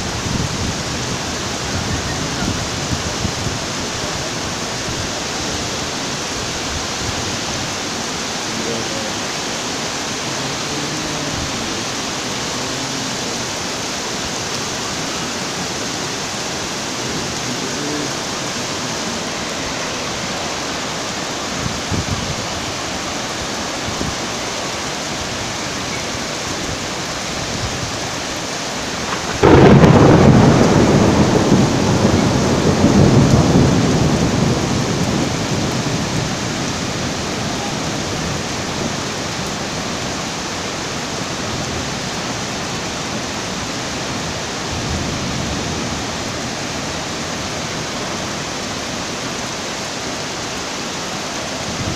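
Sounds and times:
heavy rain hissing: 0.0 - 51.9
river rushing: 0.0 - 51.9
thunderclap rumbling: 29.0 - 38.6.

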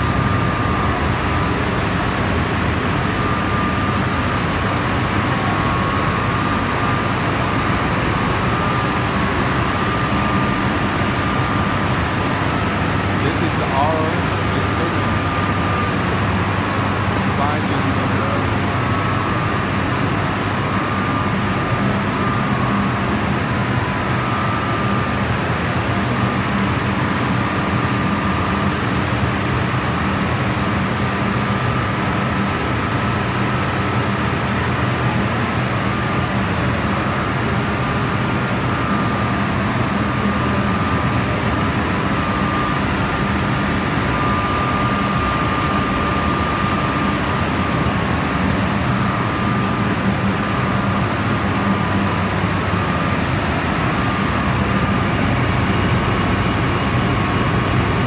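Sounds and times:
machine hum: 0.0 - 58.0
high whine: 38.5 - 58.0.

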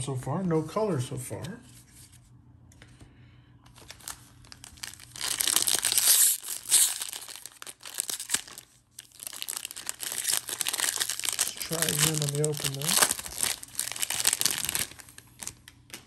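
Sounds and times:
foil wrapper crinkling and tearing: 3.7 - 16.0.

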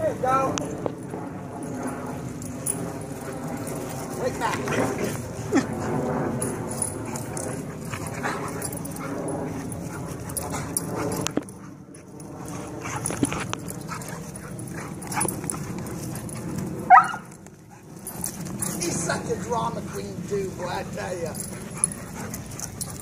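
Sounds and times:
dogs play-fighting: 0.6 - 23.0
dog yipping: 16.9 - 17.2.

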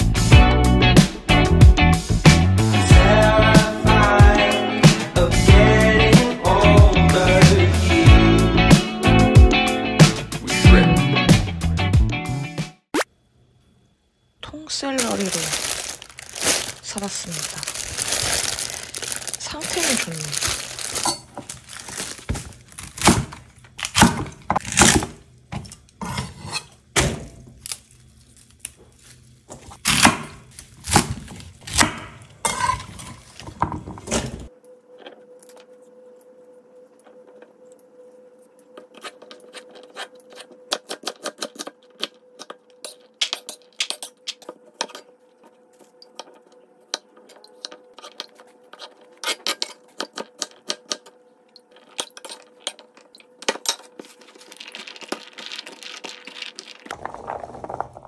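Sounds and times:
faint steady hum: 13.1 - 40.8.

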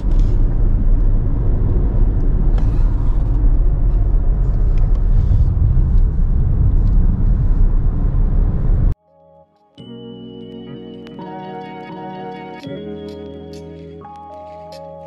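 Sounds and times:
car road and engine noise: 0.0 - 9.0.

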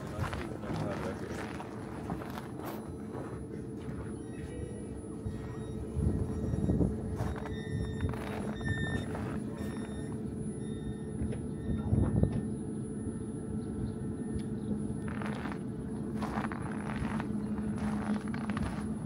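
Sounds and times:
footsteps on packed snow: 0.0 - 4.2, 7.0 - 10.0, 15.0 - 19.0
tram rumble and hum: 0.0 - 19.0.

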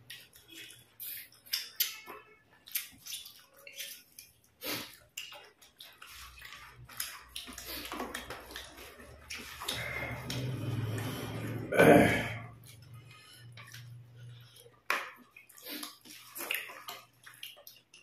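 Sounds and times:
wet chewing and smacking: 0.0 - 11.7, 12.4 - 18.0
fingers mixing rice: 2.7 - 11.0.

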